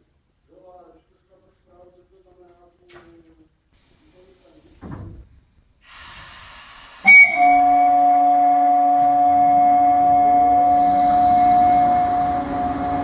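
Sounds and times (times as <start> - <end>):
hiss: 5.8 - 8.0
loud multi-tone machinery whine: 9.0 - 13.0.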